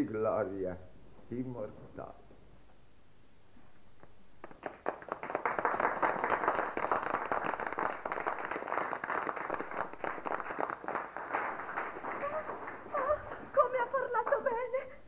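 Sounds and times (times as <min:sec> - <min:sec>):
crowd applauding: 0:04.4 - 0:13.7.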